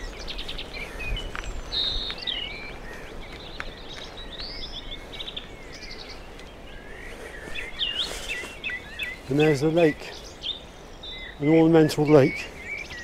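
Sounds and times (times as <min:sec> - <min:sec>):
bicycle rumbling on gravel: 0:00.0 - 0:06.6
small birds singing and chirping: 0:00.0 - 0:13.0.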